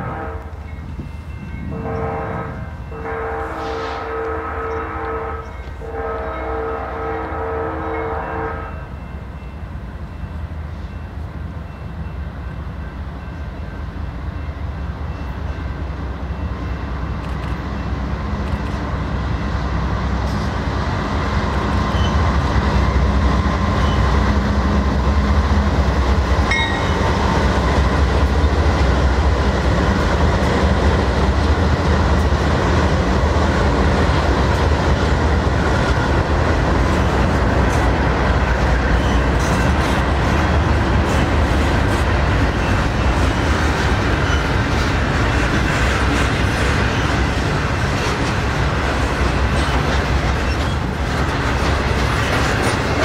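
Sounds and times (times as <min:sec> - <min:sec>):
train horn: 0:00.0 - 0:00.6, 0:01.6 - 0:09.0
diesel locomotives rumbling: 0:00.0 - 0:53.0
train cars rumbling and clattering: 0:00.0 - 0:53.0.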